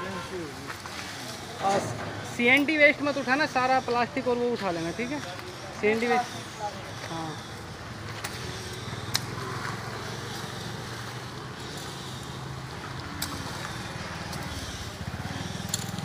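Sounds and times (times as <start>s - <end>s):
auto-rickshaw engine idling: 0.0s - 16.0s.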